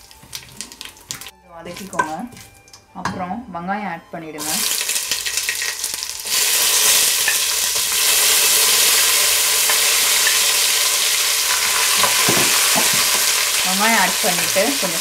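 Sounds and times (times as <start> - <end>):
spatula taps: 1.8 - 3.2
onions sizzling in fat: 4.4 - 15.0.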